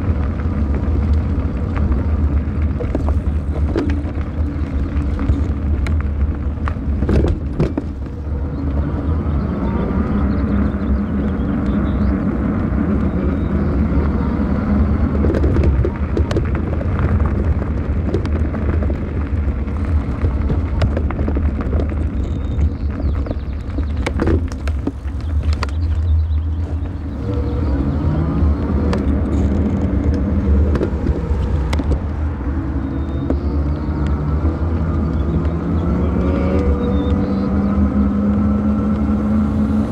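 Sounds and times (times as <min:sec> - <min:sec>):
bicycle clicks and rattles: 0:00.0 - 0:08.4, 0:14.9 - 0:27.4, 0:28.8 - 0:35.5
wind and tyre rumble: 0:00.0 - 0:39.9.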